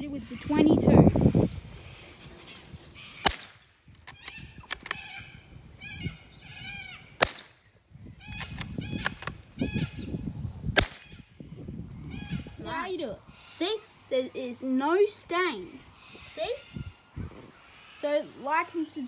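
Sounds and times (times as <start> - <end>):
rifle shots: 3.2 - 3.6, 7.2 - 7.6, 10.8 - 11.1.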